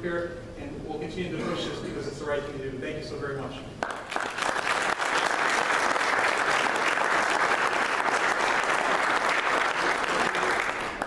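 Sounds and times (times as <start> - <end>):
people clapping: 3.8 - 11.0.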